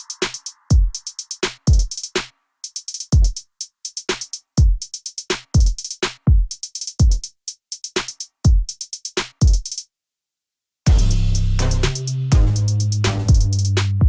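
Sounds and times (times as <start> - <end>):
high hi-hat ticks: 0.0 - 9.9, 10.9 - 14.0
deep kick drums: 10.9 - 14.0.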